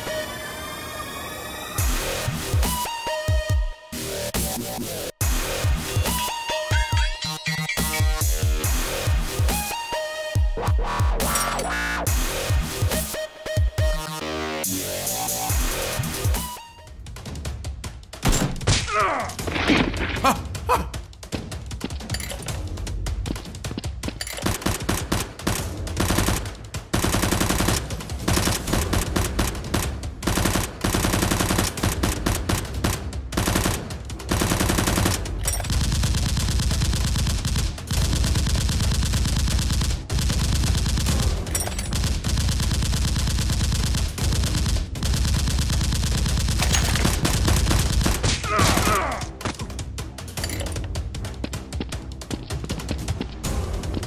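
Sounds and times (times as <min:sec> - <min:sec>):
automatic gunfire: 0:24.4 - 0:49.0.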